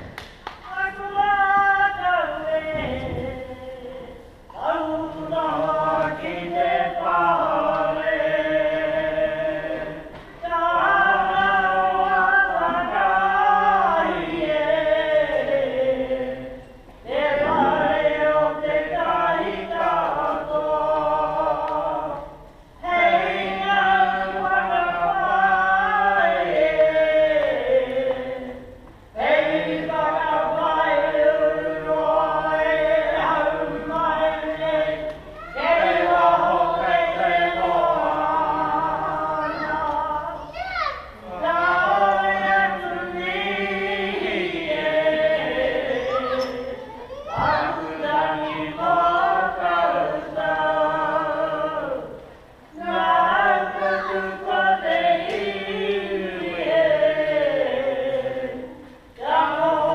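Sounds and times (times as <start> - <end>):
woman chanting unaccompanied: 29.2 - 40.4, 41.2 - 52.0, 52.8 - 58.4.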